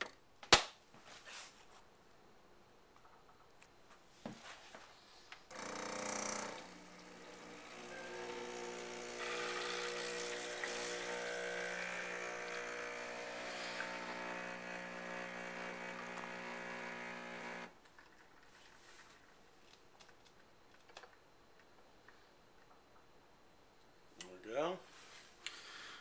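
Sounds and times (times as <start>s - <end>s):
coffee hissing into cup: 5.5s - 17.8s
espresso machine pump buzzing: 5.5s - 17.8s.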